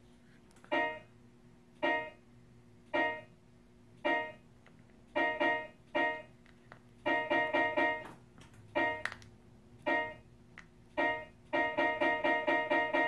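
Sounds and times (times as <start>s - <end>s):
keyboard chords: 0.6s - 1.1s, 1.8s - 2.2s, 5.1s - 6.4s, 7.0s - 9.1s, 9.8s - 10.2s, 11.0s - 13.0s.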